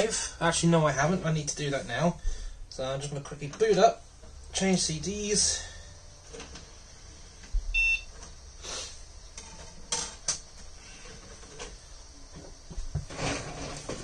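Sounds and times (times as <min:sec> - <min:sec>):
computer speaker beep: 0:07.8 - 0:08.1.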